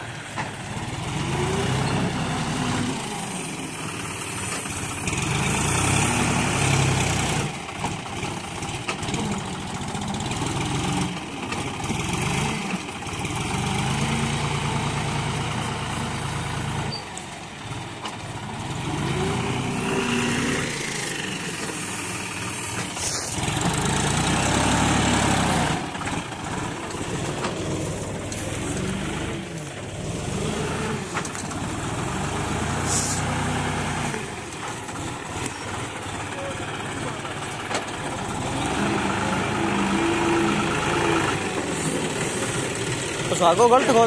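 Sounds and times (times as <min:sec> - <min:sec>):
tractor diesel engine revving: 0:00.0 - 0:44.0.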